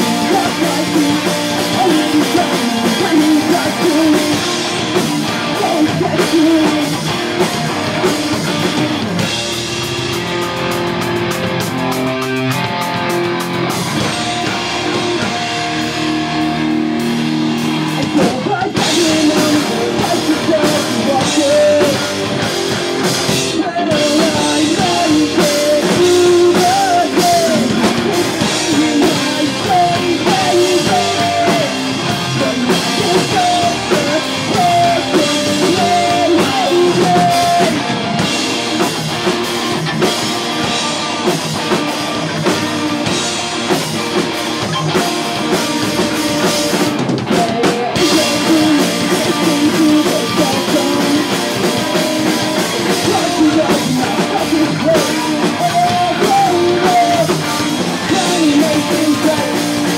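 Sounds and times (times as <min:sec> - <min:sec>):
person singing: 0:00.0 - 0:08.8, 0:17.9 - 0:39.3, 0:46.4 - 0:59.9
drums: 0:00.0 - 0:59.9
electric guitars: 0:00.0 - 0:59.9.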